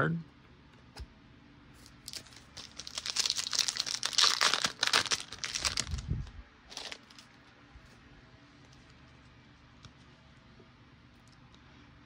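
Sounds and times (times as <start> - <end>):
plastic wrapper crinkling and tearing: 1.8 - 7.4.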